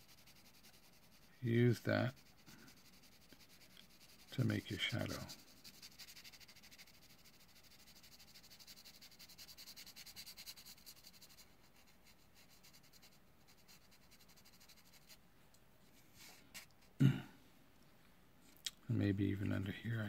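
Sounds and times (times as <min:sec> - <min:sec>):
pencil scratching on paper: 0:00.0 - 0:15.2.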